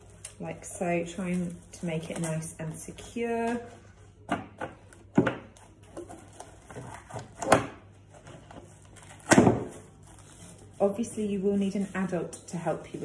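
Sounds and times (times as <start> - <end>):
cling film crinkling: 0.0 - 3.6, 8.5 - 12.9.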